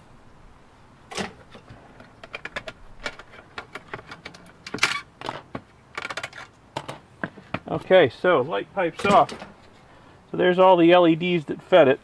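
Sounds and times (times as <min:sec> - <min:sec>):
plastic clatter: 0:01.1 - 0:07.7.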